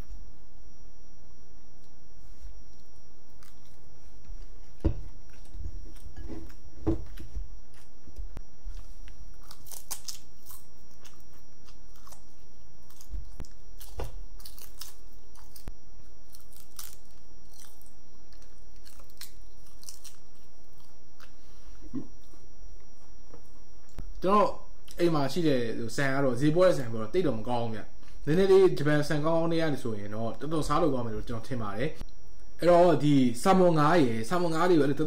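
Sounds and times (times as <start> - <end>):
person chewing: 2.3 - 8.0, 8.6 - 22.9.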